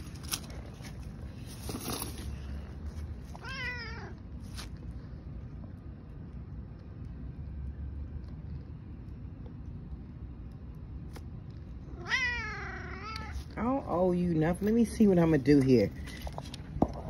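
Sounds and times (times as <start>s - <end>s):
cat meowing: 3.4s - 4.2s, 11.9s - 13.4s.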